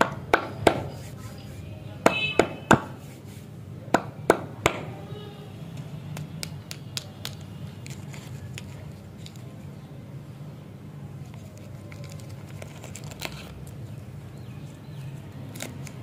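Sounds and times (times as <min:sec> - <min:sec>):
plastic wrapper crinkling: 0:07.3 - 0:09.6, 0:11.2 - 0:16.0.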